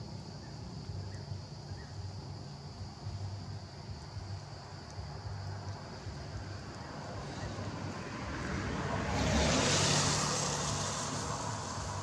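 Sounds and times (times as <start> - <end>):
vehicle passing by: 5.3 - 12.0.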